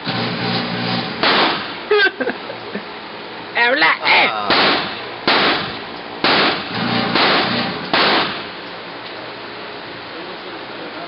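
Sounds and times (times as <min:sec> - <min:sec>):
pistol shots echoing: 0:01.2 - 0:01.6, 0:04.5 - 0:08.5.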